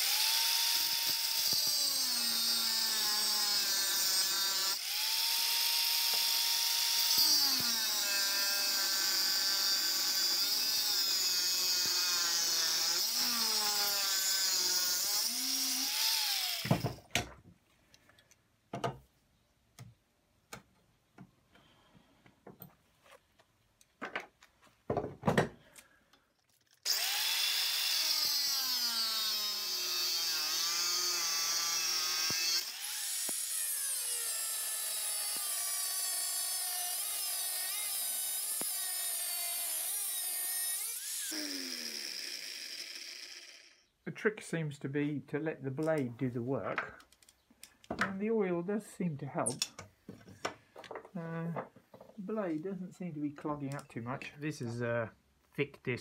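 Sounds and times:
angle grinder cutting metal: 0.0 - 16.9, 26.8 - 43.9.

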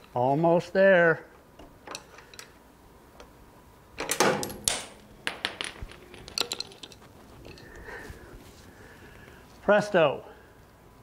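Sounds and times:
metal clinks and rattles: 4.4 - 7.9.

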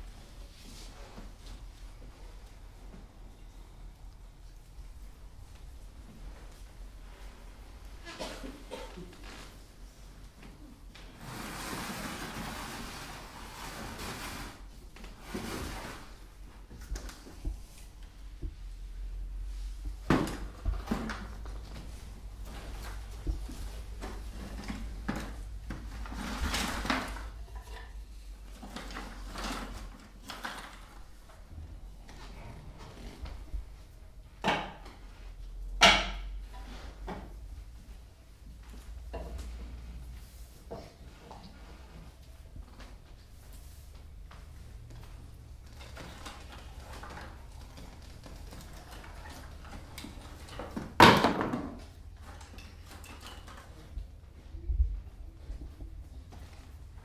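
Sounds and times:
wooden boards knocking in a bucket: 50.2 - 51.9.

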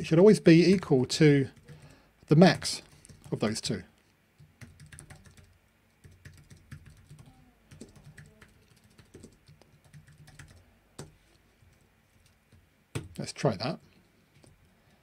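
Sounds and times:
typing on computer keyboard: 1.5 - 1.8, 2.8 - 3.3, 4.4 - 13.2.

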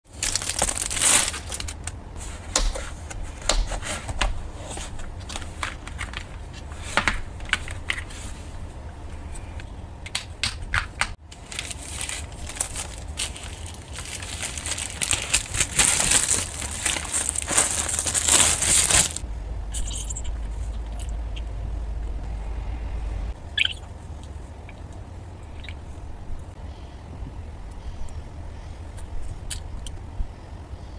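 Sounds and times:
plastic packaging crinkling: 0.1 - 2.0, 11.2 - 19.2.

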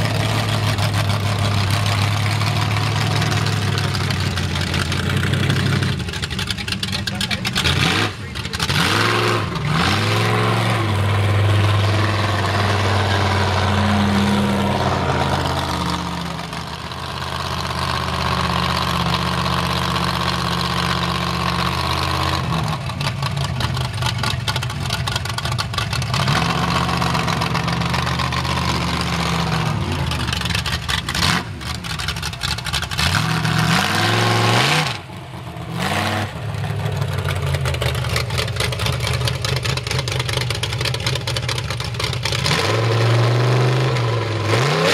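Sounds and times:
truck engine revving: 0.0 - 44.9.

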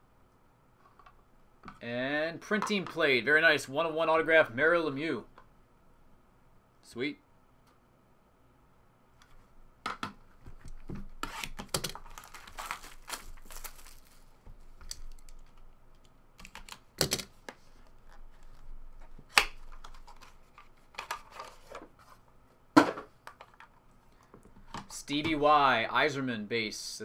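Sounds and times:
cards rustling and sliding: 10.4 - 15.6.

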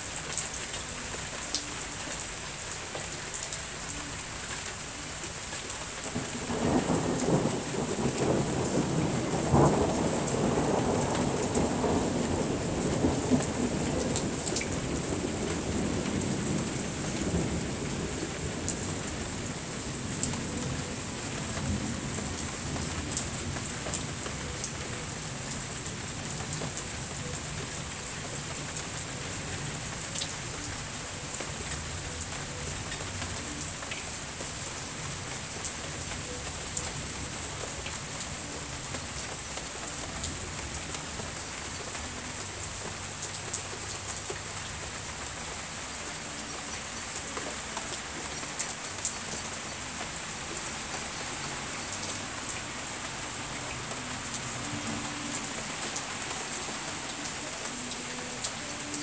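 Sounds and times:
heavy rain falling: 0.0 - 59.0
low rumble of thunder: 6.2 - 24.7.

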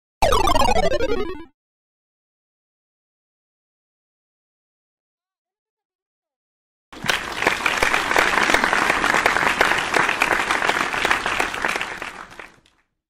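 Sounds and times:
applause: 7.0 - 12.8.

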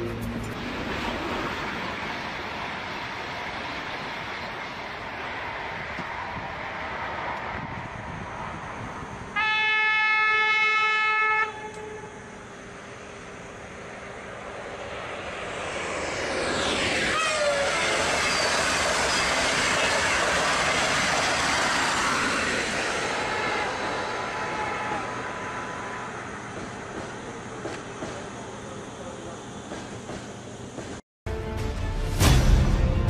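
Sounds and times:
train rushing past: 0.0 - 33.0
train horn blast: 9.4 - 12.4, 17.1 - 17.6.

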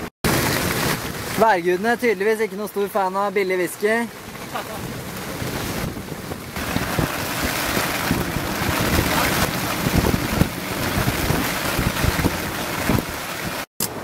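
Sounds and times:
sea rushing: 0.0 - 14.0
wind buffeting microphone: 4.2 - 13.6.

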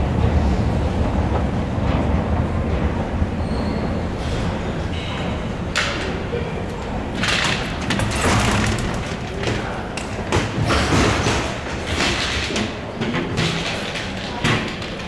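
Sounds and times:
steady low rumble: 0.0 - 10.3.

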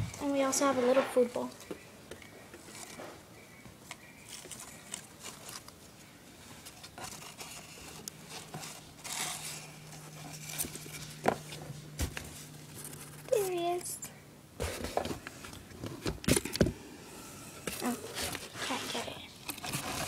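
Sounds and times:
faint steady hum: 0.0 - 20.0
hamster scratching and rustling: 6.5 - 13.8.

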